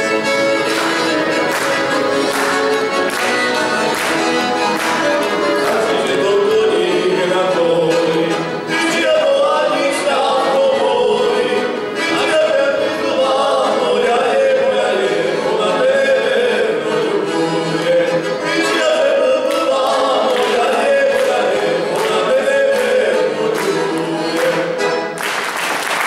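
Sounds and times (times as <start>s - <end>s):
two men singing folk song: 4.9s - 25.1s.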